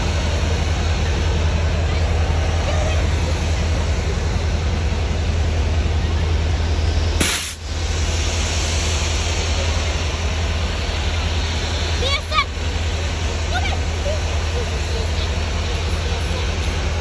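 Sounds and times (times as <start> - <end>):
diesel locomotive rumbling: 0.0 - 17.0
short hiss: 7.2 - 7.6.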